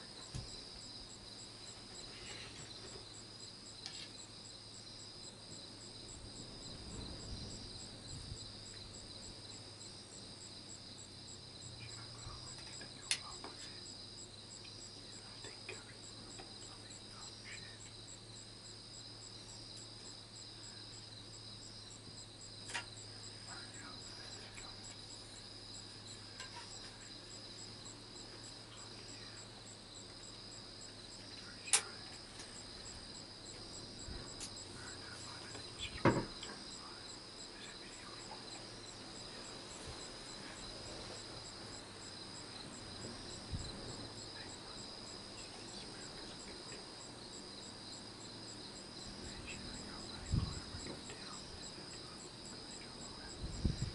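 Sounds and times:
night insects chirping: 0:00.0 - 0:53.9.

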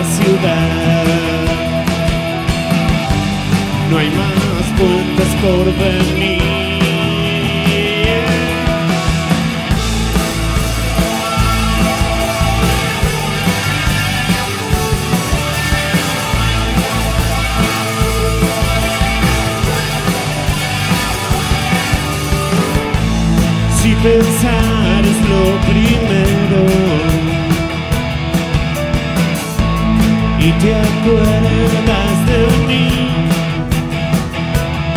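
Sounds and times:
rock band playing live: 0:00.0 - 0:34.9
cymbals: 0:08.6 - 0:23.7.

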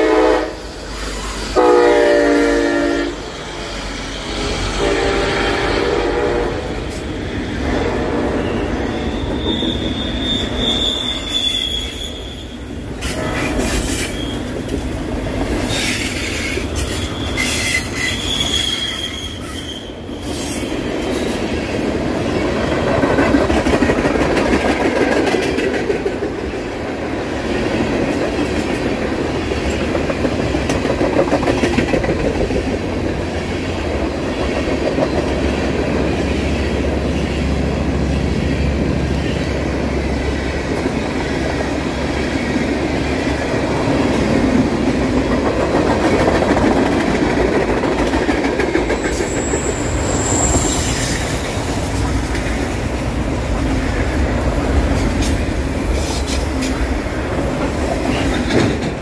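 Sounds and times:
freight train wheels rumbling: 0:00.0 - 0:59.0
high wheel squeal: 0:06.9 - 0:14.7, 0:15.6 - 0:22.5, 0:48.8 - 0:51.5.

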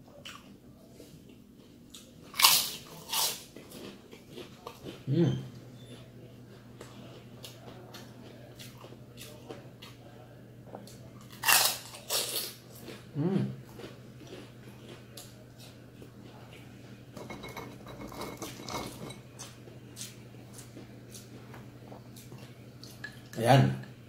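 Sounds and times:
crunching crispy fried food: 0:02.0 - 0:05.0, 0:11.3 - 0:13.0.

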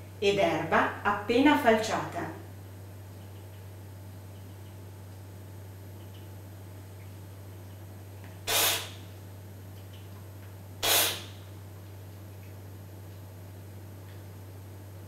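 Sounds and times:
air slurped through teeth: 0:08.5 - 0:09.0.

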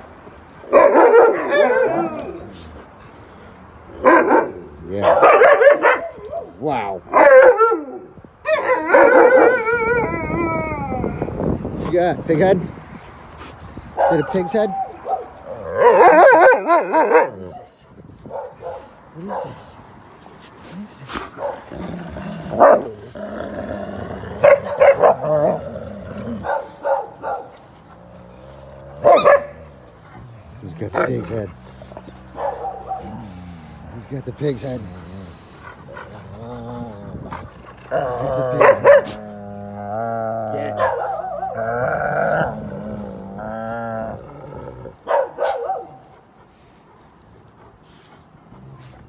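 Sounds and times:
dogs barking and yelping: 0:00.5 - 0:02.6, 0:03.7 - 0:11.6, 0:13.9 - 0:19.6, 0:21.2 - 0:23.2, 0:24.0 - 0:49.0
dogs growling: 0:20.3 - 0:49.0.

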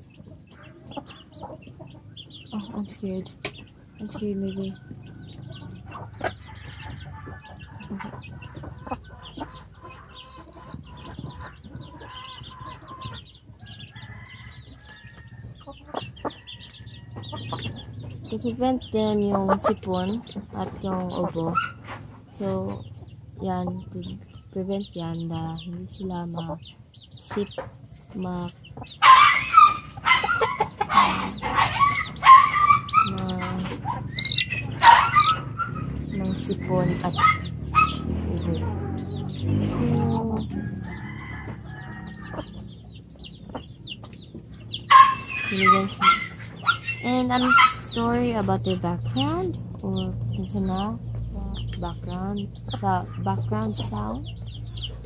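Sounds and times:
birds chirping: 0:00.0 - 0:55.0
chickens clucking: 0:00.0 - 0:55.0
dog barking: 0:29.0 - 0:34.0, 0:34.8 - 0:35.9, 0:37.1 - 0:38.1, 0:44.9 - 0:47.8.

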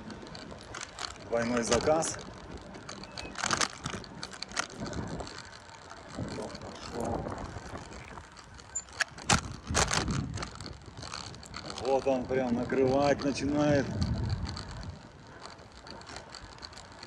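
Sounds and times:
bicycle clicking and rattling: 0:00.0 - 0:17.0.

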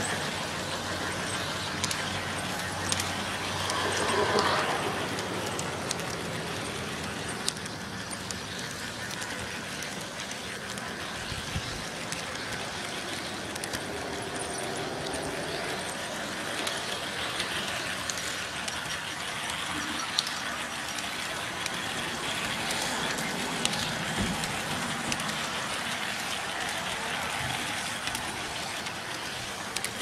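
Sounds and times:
model train running on track: 0:00.0 - 0:30.0.

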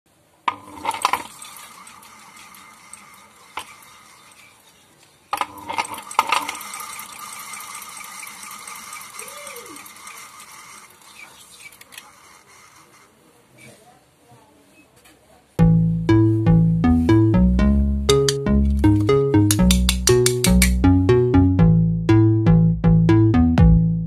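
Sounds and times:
fan rotor whirring: 0:00.5 - 0:13.1.

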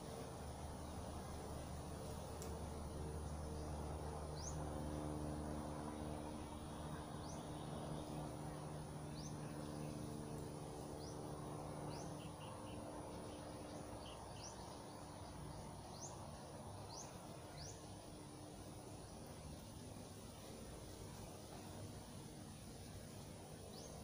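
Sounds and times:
steady low hum: 0:00.0 - 0:24.0
bird high rising chirp: 0:03.2 - 0:05.1, 0:05.8 - 0:18.1.

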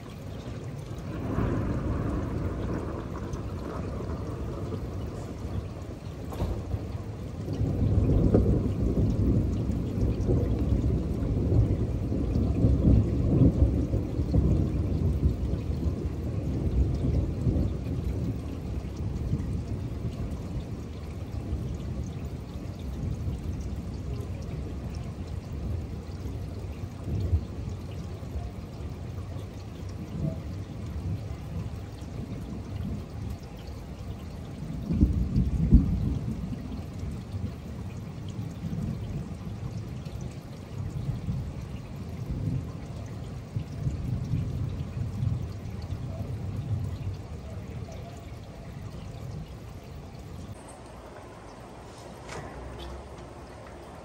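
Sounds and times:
steady rain: 0:00.0 - 0:54.0
thunder rolling: 0:00.9 - 0:20.5, 0:49.2 - 0:54.0.

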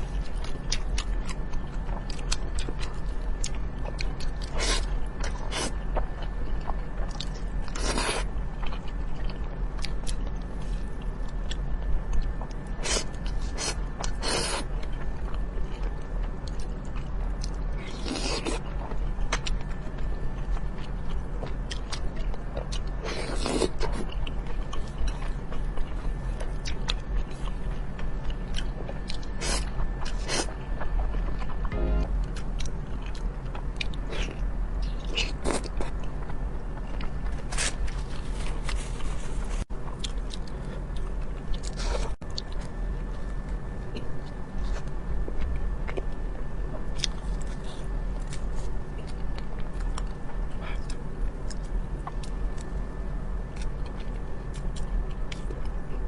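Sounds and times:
chewing with wet mouth clicks: 0:53.5 - 0:55.8.

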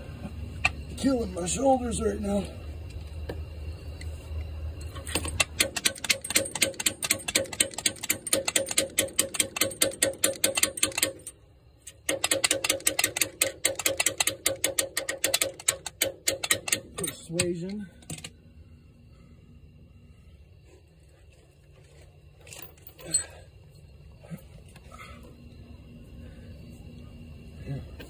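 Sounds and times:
hand ratchet clicking rapidly: 0:05.4 - 0:11.3, 0:12.1 - 0:18.3.

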